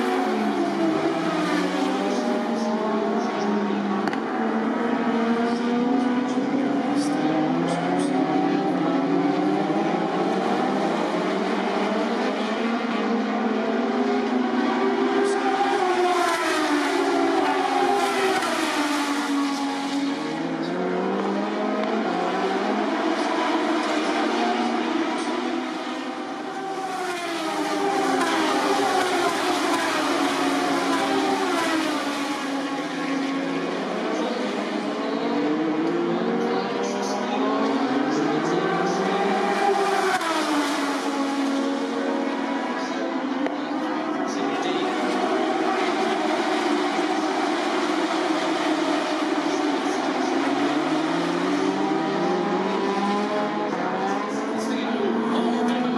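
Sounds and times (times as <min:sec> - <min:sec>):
race bike engines at speed: 0:00.0 - 0:55.9.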